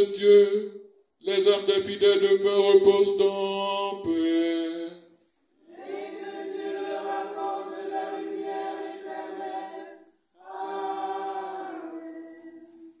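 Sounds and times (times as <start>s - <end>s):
congregation singing a hymn: 5.6s - 13.0s.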